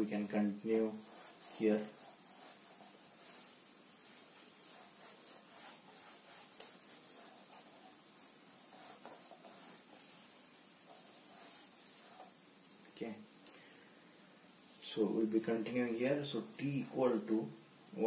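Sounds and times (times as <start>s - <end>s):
eraser rubbing whiteboard: 0.7s - 12.8s.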